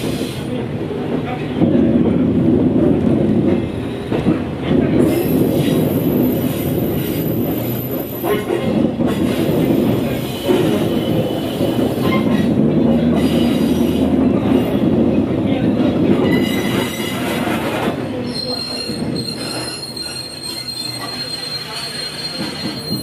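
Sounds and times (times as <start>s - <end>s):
diesel railcar rumble: 0.0s - 23.0s
high wheel squeal: 10.1s - 14.8s, 16.2s - 23.0s.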